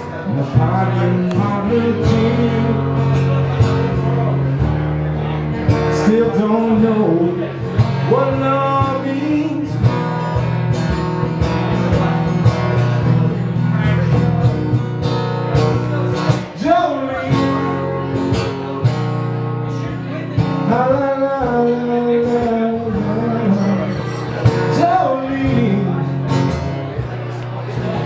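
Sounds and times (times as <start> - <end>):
man singing: 0.0 - 10.2, 15.7 - 17.9, 19.7 - 26.6
acoustic guitar strumming: 0.0 - 28.0.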